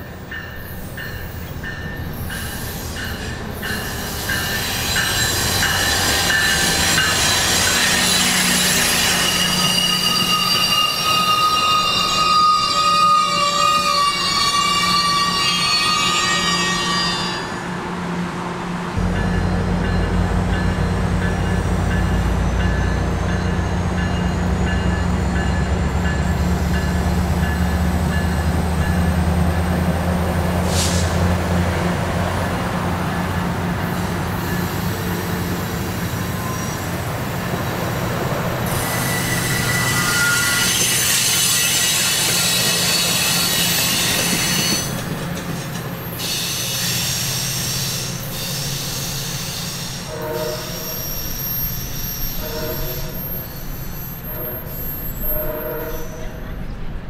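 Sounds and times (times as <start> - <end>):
train coaches rumbling: 0.0 - 57.0
high wheel squeal: 0.5 - 17.7, 33.8 - 56.7.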